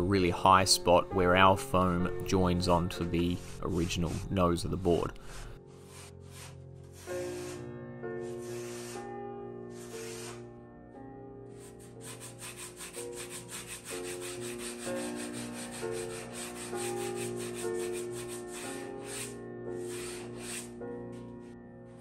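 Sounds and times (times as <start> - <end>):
gentle background music: 0.0 - 22.0
hand sanding strokes: 3.0 - 7.6, 8.2 - 9.1, 9.7 - 10.4, 11.6 - 20.8.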